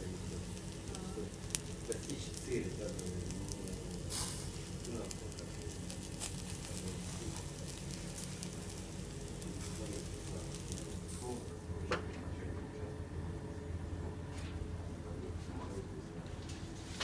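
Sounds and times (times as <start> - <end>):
meat sizzling over charcoal: 0.0 - 11.6
coals popping and crackling: 0.0 - 12.3
steady low hum: 0.0 - 17.0.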